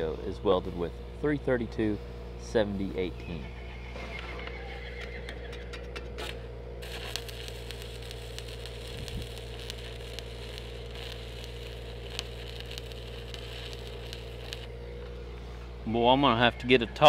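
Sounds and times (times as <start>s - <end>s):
steady low hum: 0.0s - 17.0s
welding arc crackling and sizzling: 4.8s - 14.8s.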